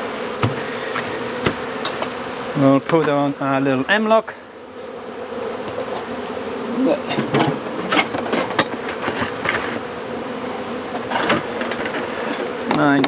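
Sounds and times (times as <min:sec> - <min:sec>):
honeybees buzzing: 0:00.0 - 0:13.0
knocks on wooden hive boxes: 0:00.2 - 0:02.2, 0:02.8 - 0:03.4, 0:05.4 - 0:06.2, 0:07.0 - 0:09.9, 0:10.9 - 0:13.0.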